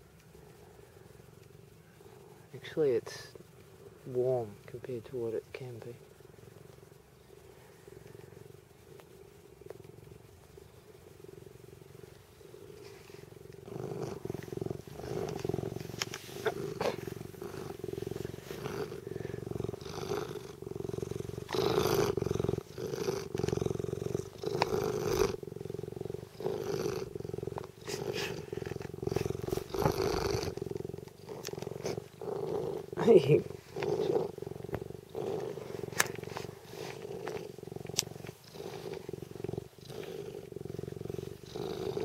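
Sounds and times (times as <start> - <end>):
cat purring: 0.0 - 42.0
fur brushing microphone: 31.7 - 37.6.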